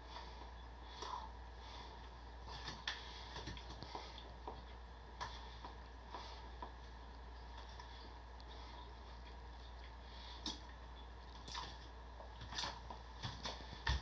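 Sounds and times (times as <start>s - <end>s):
low steady hum: 0.0s - 14.0s
mouth clicks and smacks chewing: 9.2s - 12.8s.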